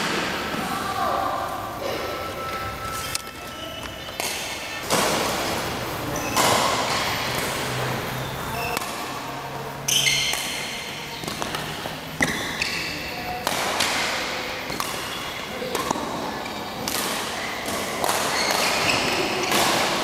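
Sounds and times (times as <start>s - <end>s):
shoe squeaks: 2.1s - 4.8s, 6.1s - 7.2s, 8.1s - 8.8s, 9.9s - 10.3s, 18.3s - 19.5s
racket striking shuttlecock: 2.6s - 5.6s, 6.3s - 7.8s, 9.9s - 12.8s, 13.4s - 20.0s.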